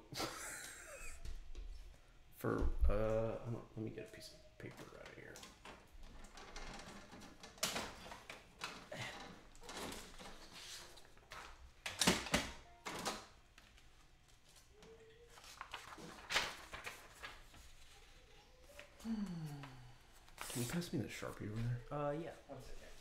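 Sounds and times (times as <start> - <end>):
rustling: 13.5 - 19.0.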